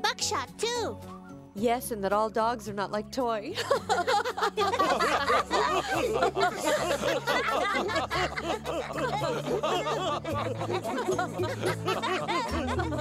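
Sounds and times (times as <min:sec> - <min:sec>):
low background music: 0:00.0 - 0:13.0
cartoon characters laughing: 0:03.6 - 0:13.0.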